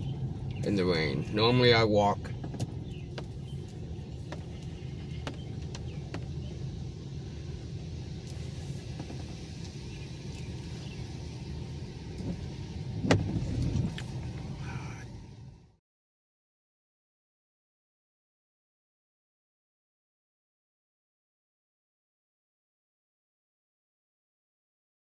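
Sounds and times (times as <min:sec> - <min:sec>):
rain ticking on windshield: 0:00.0 - 0:15.2
car engine and road rumble: 0:00.0 - 0:15.8
windshield wiper sweeping: 0:02.3 - 0:15.0.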